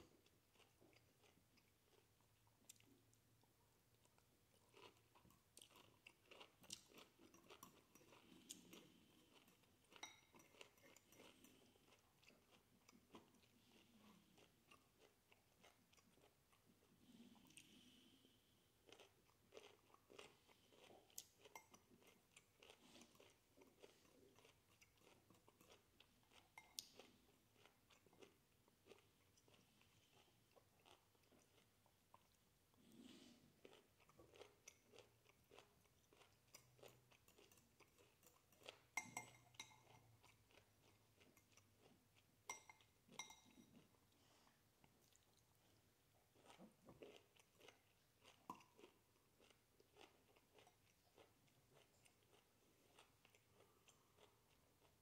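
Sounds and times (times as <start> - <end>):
person chewing crunchy food: 0.0 - 55.0
fork clinking on ceramic bowl: 10.0 - 10.6, 42.5 - 43.6.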